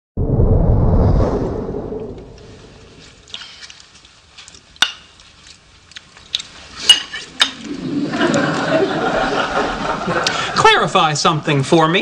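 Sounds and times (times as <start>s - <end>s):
forks clinking on plates: 6.8s - 7.6s.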